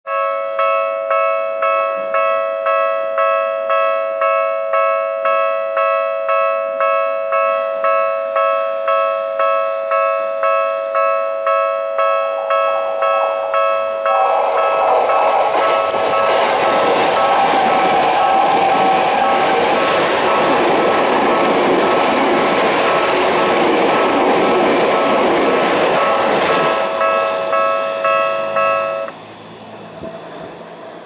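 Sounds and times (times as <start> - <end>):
level-crossing alarm ringing: 0.1 - 29.6
electric train passing: 6.3 - 31.0.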